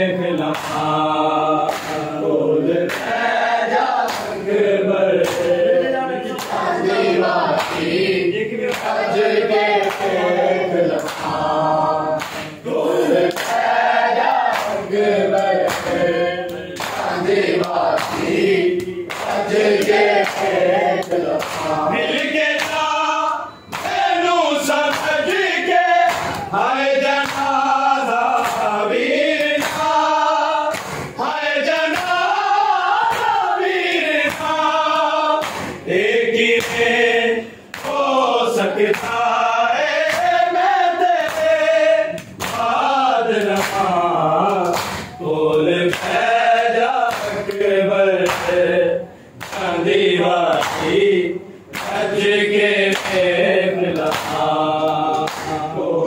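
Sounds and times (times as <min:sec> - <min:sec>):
men chanting in chorus: 0:00.0 - 0:56.0
hands slapping bare chests: 0:00.4 - 0:00.8, 0:01.7 - 0:02.1, 0:02.9 - 0:03.2, 0:04.0 - 0:04.4, 0:05.2 - 0:05.6, 0:10.9 - 0:11.4, 0:12.2 - 0:12.6, 0:13.2 - 0:22.8, 0:24.9 - 0:25.2, 0:26.0 - 0:26.5, 0:27.1 - 0:27.6, 0:28.2 - 0:28.7, 0:29.4 - 0:30.0, 0:30.7 - 0:31.1, 0:33.0 - 0:35.8, 0:36.6 - 0:36.9, 0:37.7 - 0:38.0, 0:38.9 - 0:39.3, 0:40.0 - 0:40.4, 0:41.2 - 0:42.8, 0:43.4 - 0:45.2, 0:47.1 - 0:48.6, 0:49.4 - 0:49.7, 0:50.5 - 0:50.9, 0:51.7 - 0:52.1, 0:54.0 - 0:55.6.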